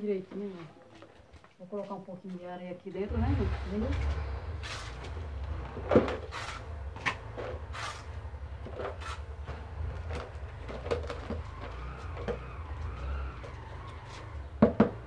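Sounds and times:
trowel scraping soil in pot: 0:04.6 - 0:05.1, 0:06.2 - 0:09.3.

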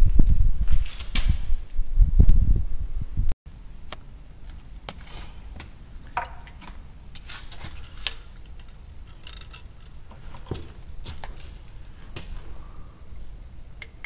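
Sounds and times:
metal tools clicking and clinking: 0:07.2 - 0:10.8.

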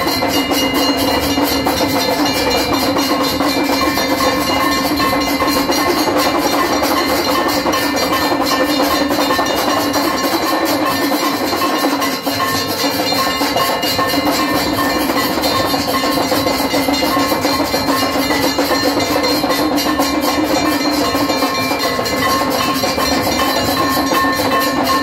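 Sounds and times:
temple bells clanging: 0:00.0 - 0:25.0.

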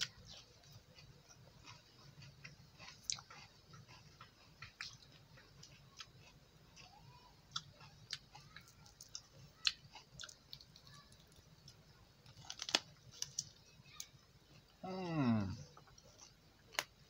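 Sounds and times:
person biting and chewing: 0:00.0 - 0:06.9, 0:12.3 - 0:13.5.

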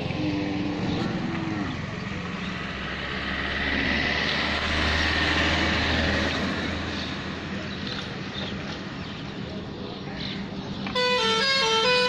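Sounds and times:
vehicle passing: 0:00.0 - 0:08.2.

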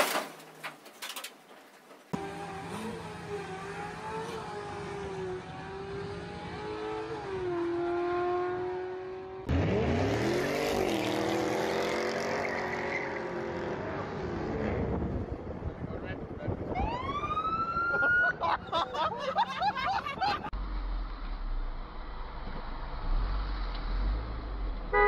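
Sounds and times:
car engine revving steeply: 0:02.2 - 0:15.3
drag racing car engine: 0:02.2 - 0:15.6.

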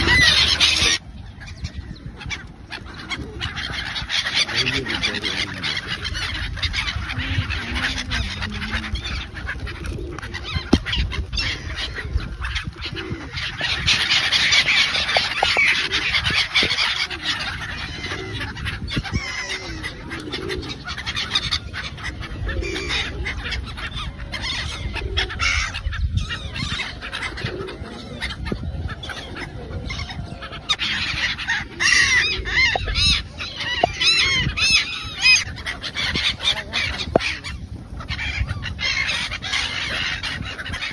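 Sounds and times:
gulls calling: 0:00.0 - 0:40.9.

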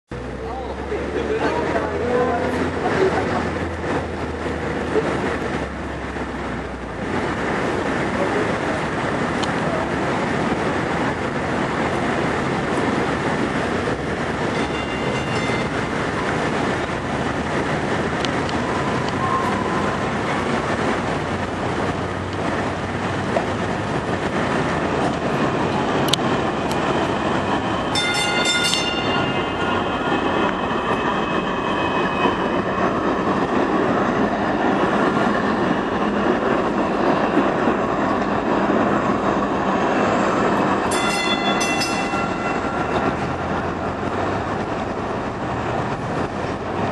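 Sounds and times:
train wheels rumbling on rail: 0:00.1 - 0:46.9
high-pitched ringing tones: 0:18.7 - 0:20.0, 0:27.9 - 0:32.1, 0:40.9 - 0:43.7.

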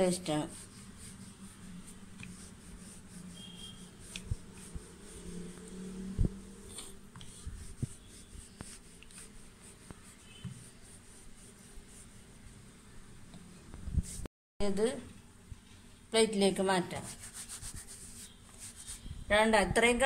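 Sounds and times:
rolling pin rubbing dough: 0:00.0 - 0:12.9.

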